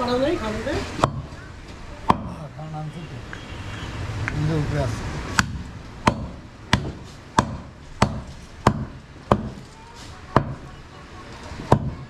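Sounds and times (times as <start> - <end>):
cleaver chopping meat on wood: 2.1 - 2.4, 5.4 - 9.6.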